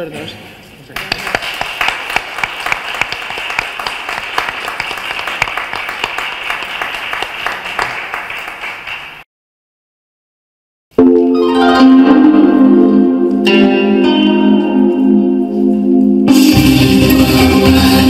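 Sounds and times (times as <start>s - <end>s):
audience applause: 1.0s - 9.2s.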